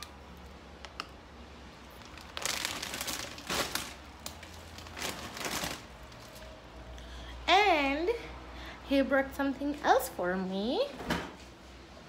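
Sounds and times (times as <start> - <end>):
plastic snack bag crinkling: 1.8 - 6.6.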